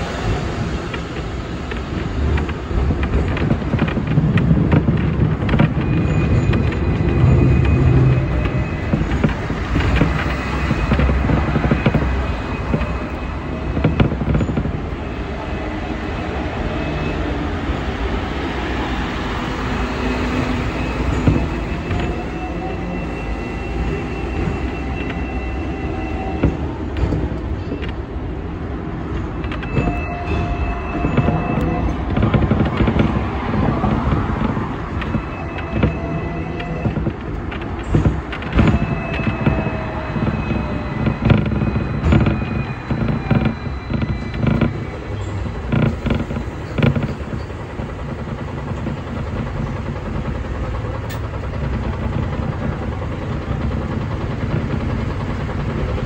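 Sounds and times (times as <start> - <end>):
tram wheels rumbling on rails: 0.0 - 56.0.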